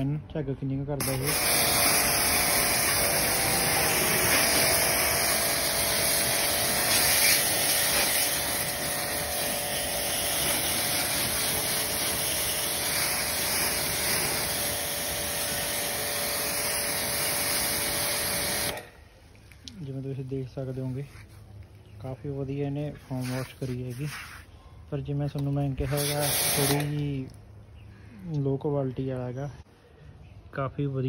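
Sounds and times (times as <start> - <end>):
foam cannon hissing spray: 1.0 - 18.9, 25.8 - 27.1
pressure washer pump running: 1.0 - 19.0, 25.8 - 27.2.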